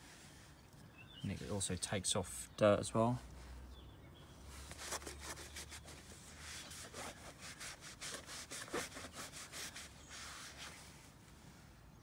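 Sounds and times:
towel rubbing rubber seal: 4.7 - 10.8.

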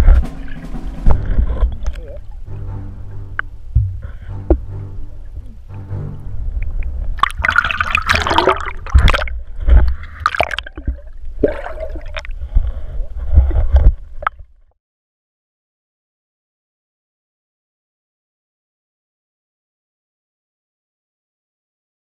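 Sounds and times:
low rumble: 0.0 - 14.2
underwater water gurgling: 6.4 - 14.5
loud splashing: 7.1 - 9.4, 10.0 - 12.2.

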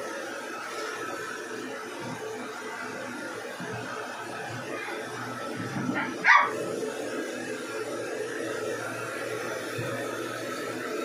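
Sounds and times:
puppy barking: 6.0 - 6.6.

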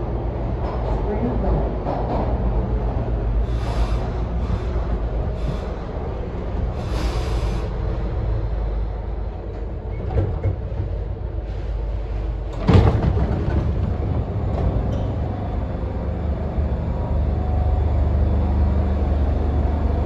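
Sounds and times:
subway car rumbling: 0.0 - 20.0
train doors opening clunk: 9.4 - 15.6.

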